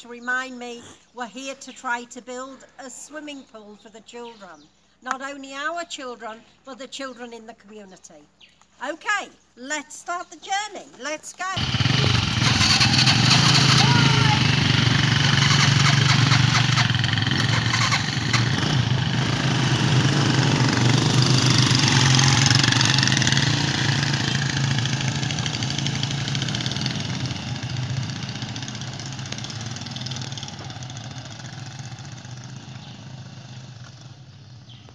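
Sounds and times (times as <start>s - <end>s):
small motorcycles riding off: 11.6s - 34.9s.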